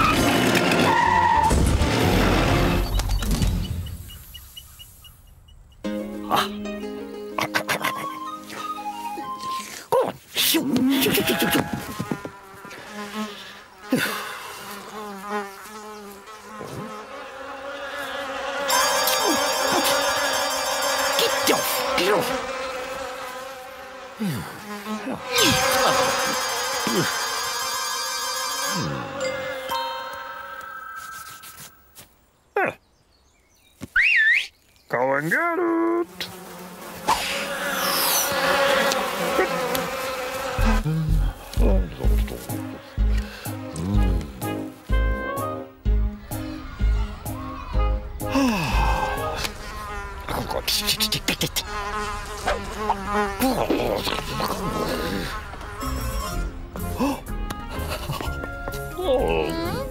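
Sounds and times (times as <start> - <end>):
cartoon fly buzzing: 10.7 - 29.6, 35.6 - 45.7, 48.6 - 59.9
short cartoon whistles: 33.9 - 34.5.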